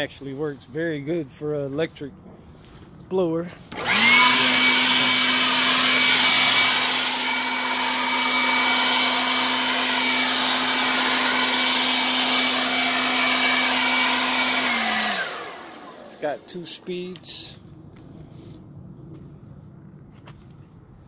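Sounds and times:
leaf blower motor whine: 0:03.7 - 0:17.5.

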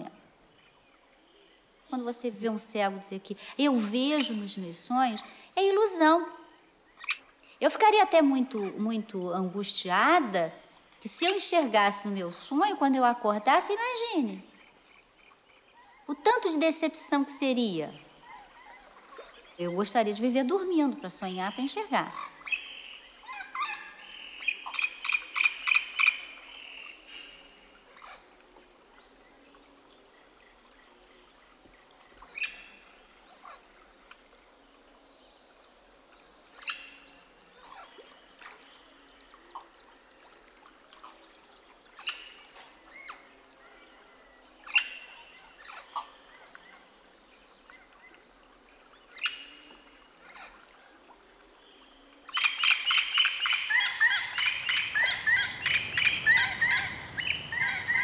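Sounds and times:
steady high hiss: 0:13.6 - 0:58.0
loud animal calls: 0:52.4 - 0:58.0.

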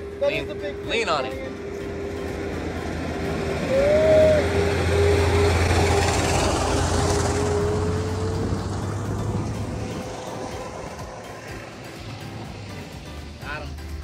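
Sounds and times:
short rising tone: 0:00.0 - 0:14.0
vehicle passing: 0:00.0 - 0:14.0.

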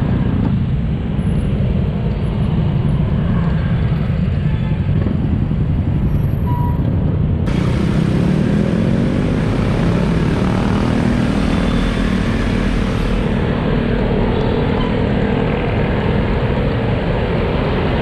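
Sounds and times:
wind rumble on microphone: 0:00.0 - 0:08.0
motorcycle and scooter engines: 0:00.0 - 0:18.0.

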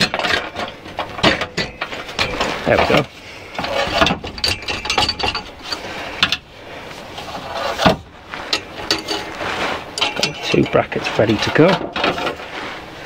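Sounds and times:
metal clamps clinking and knocking: 0:00.0 - 0:06.5, 0:07.2 - 0:12.5.

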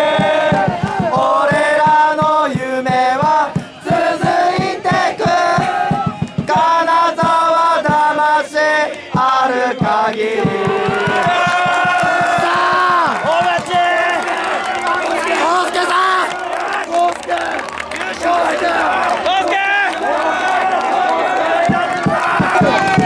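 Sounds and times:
crowd singing in unison: 0:00.0 - 0:13.3, 0:14.4 - 0:23.0
steady drum beat: 0:00.0 - 0:14.8, 0:21.1 - 0:23.0.

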